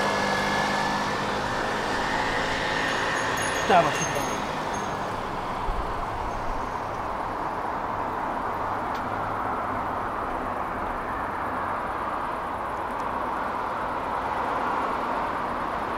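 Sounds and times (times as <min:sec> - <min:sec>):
distant road traffic hum: 0:00.0 - 0:15.9.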